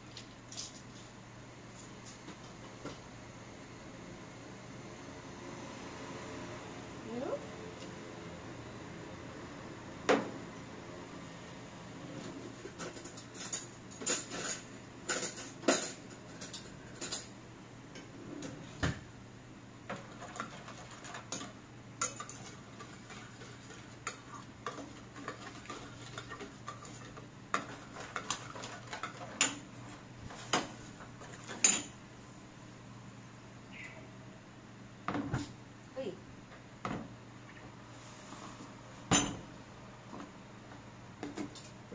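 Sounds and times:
cutlery clinking against bowls: 0:12.7 - 0:17.3, 0:20.3 - 0:29.6.

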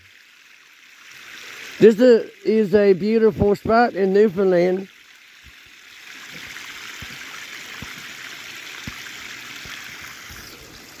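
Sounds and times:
brook trickling and splashing: 0:00.0 - 0:11.0.

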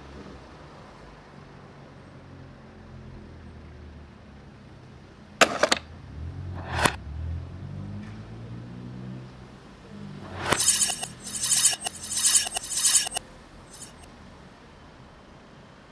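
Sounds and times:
sharp clicks: 0:10.5 - 0:14.0.

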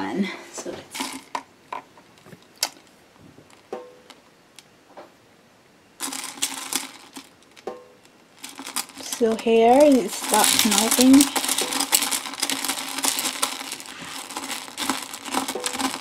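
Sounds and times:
wax beads rattling in metal pot: 0:00.9 - 0:01.5, 0:06.0 - 0:16.0.

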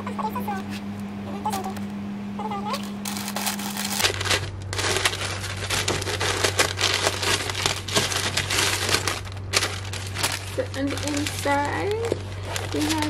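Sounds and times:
tissue paper rustling: 0:03.0 - 0:13.0.

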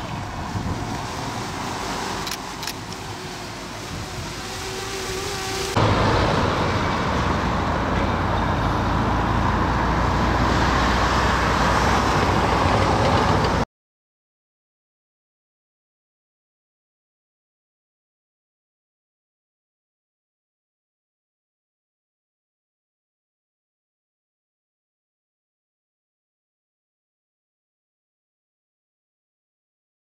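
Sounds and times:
faint rising whine: 0:00.0 - 0:12.2
steady rushing noise with low hum: 0:00.0 - 0:13.6
traffic noise: 0:00.0 - 0:13.7
sharp clicks: 0:02.2 - 0:03.0.

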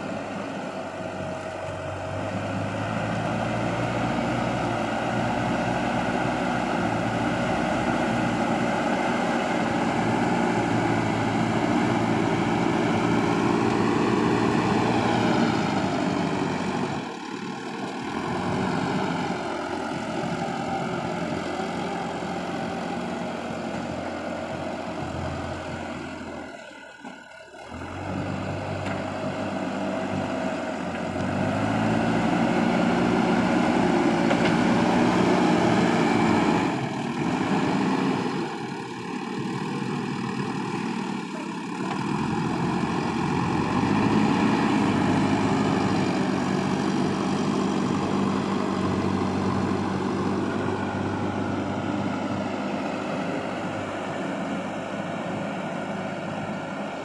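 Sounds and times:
diesel engine revving: 0:00.0 - 0:57.0.

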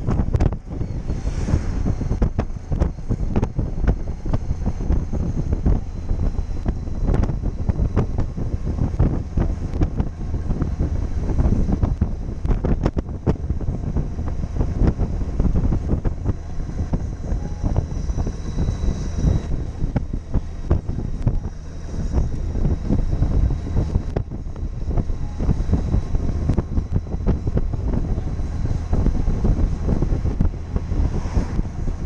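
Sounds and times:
motorcycle engine running: 0:00.0 - 0:32.0
road noise: 0:00.0 - 0:32.0
wind buffeting microphone: 0:00.0 - 0:32.0.

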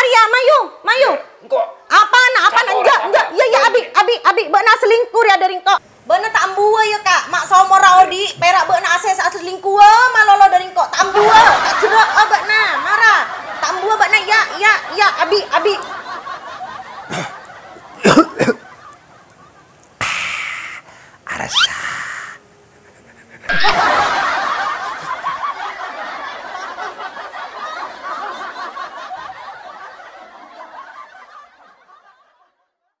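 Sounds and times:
people laughing heartily: 0:11.0 - 0:19.8, 0:22.8 - 0:32.7
short breathy noisy bursts: 0:20.0 - 0:23.6.

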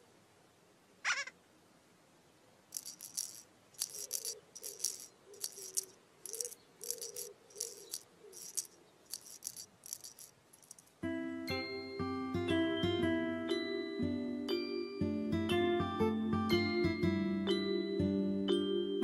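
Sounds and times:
rattle shaken: 0:02.7 - 0:11.0.

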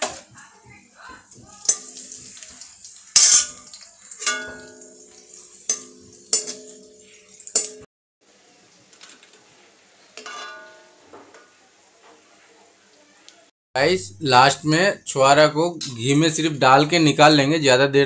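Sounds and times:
faint sizzle: 0:00.0 - 0:13.5
spoon scraping metal pan: 0:01.6 - 0:07.8.

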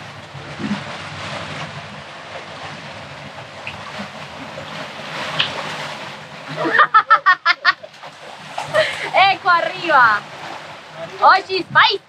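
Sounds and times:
wind on microphone: 0:00.0 - 0:07.0
water splashing along hull: 0:00.0 - 0:12.0.

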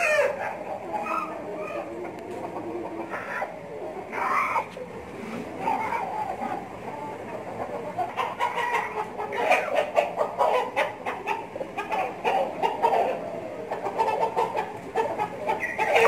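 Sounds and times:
roosters clucking: 0:00.0 - 0:16.0.

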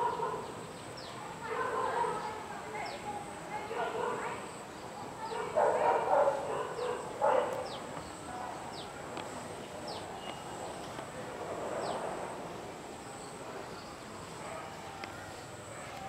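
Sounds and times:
dog barking: 0:00.0 - 0:00.5, 0:05.3 - 0:07.8.

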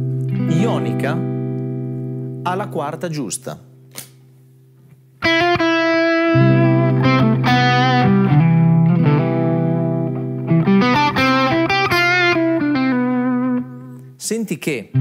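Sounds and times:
electric guitar lead melody: 0:00.0 - 0:02.6, 0:04.8 - 0:14.2.

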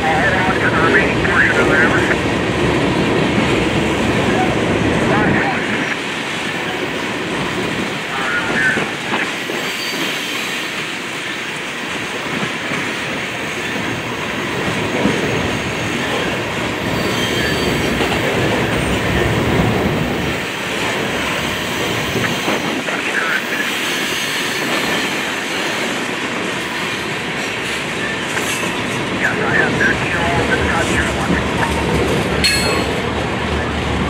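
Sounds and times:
train wheels rumbling and clattering: 0:00.0 - 0:34.0
high wheel squeals: 0:16.9 - 0:18.0.

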